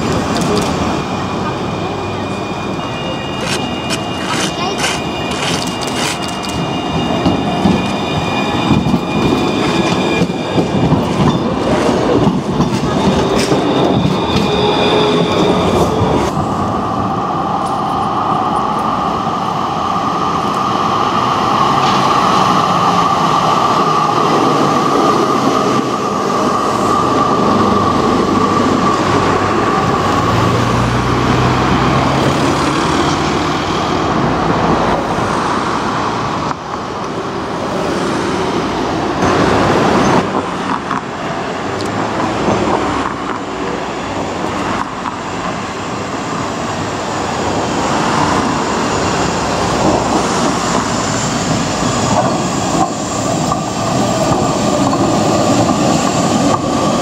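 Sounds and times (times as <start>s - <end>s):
tram high whine: 0.0s - 57.0s
tram higher-pitched tone: 0.0s - 57.0s
wheels rumbling on rail: 0.0s - 57.0s.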